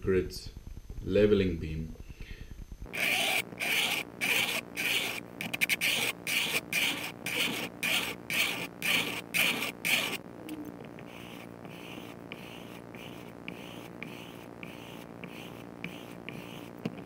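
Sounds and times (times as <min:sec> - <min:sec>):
file rasping on metal frets: 0:02.9 - 0:10.2, 0:11.0 - 0:16.8.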